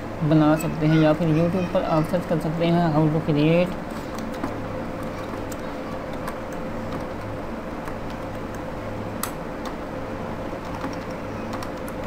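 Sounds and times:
steady low hum: 0.0s - 12.0s
keyboard keystrokes clicking: 4.1s - 8.6s, 10.6s - 12.0s.

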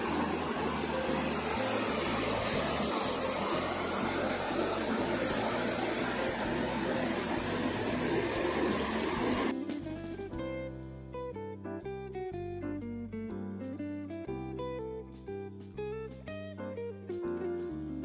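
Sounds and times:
river water pouring over weir: 0.0s - 9.5s
acoustic guitar music: 0.0s - 18.0s.

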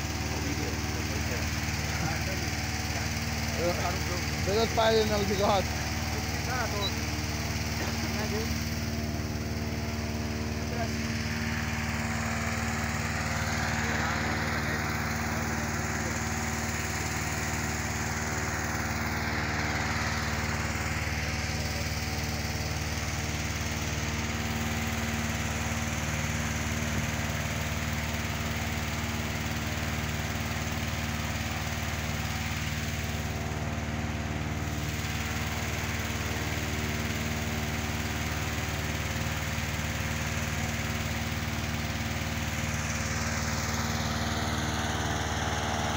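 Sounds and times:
inflator fan petrol engine running: 0.0s - 45.9s.

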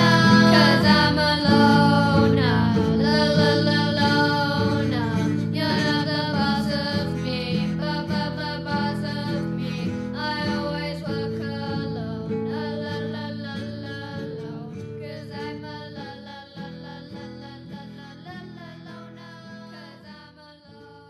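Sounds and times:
rhythmic guitar chords: 0.0s - 13.2s.

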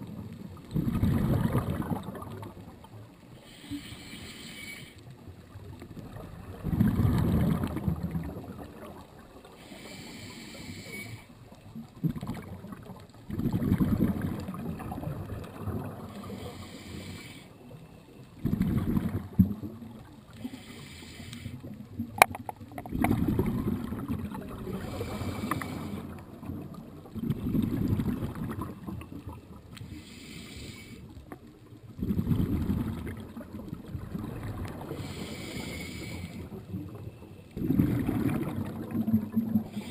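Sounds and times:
exhaust bubbles rumbling: 0.0s - 2.8s, 6.0s - 9.0s, 11.9s - 16.2s, 18.4s - 19.9s, 22.1s - 29.5s, 32.0s - 35.5s, 36.5s - 39.9s
regulator hissing inhalations: 3.4s - 5.0s, 9.6s - 11.3s, 16.2s - 17.5s, 20.4s - 21.6s, 24.8s - 26.1s, 29.9s - 31.0s, 34.9s - 36.5s.

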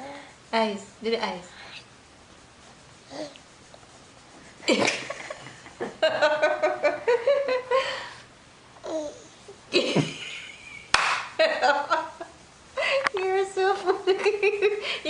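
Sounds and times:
person laughing: 4.7s - 8.0s, 9.7s - 12.2s.

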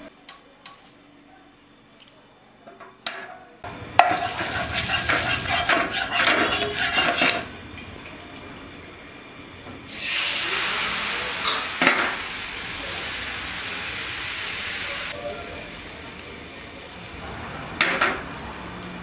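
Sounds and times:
batter sizzling in a pan: 4.0s - 7.6s, 9.9s - 19.0s.

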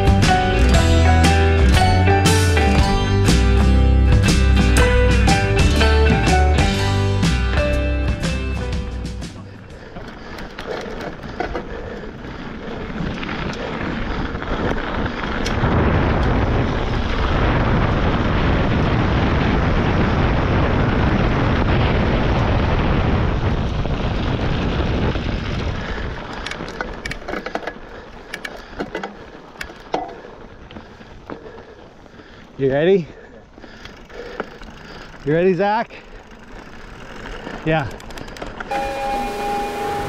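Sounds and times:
bike tyres rolling on sand: 0.0s - 40.0s
wind buffeting microphone: 9.4s - 32.6s
clicks and rattles: 26.3s - 30.3s, 37.5s - 38.7s.

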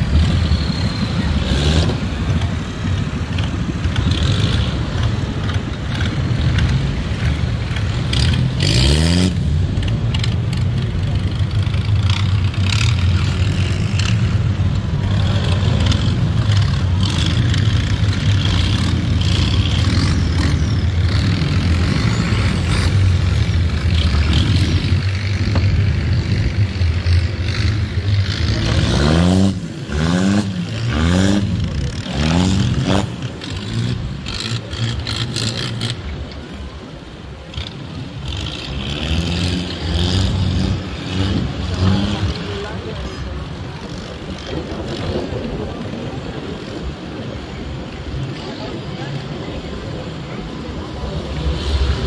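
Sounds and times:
boat engine running: 9.6s - 29.9s.

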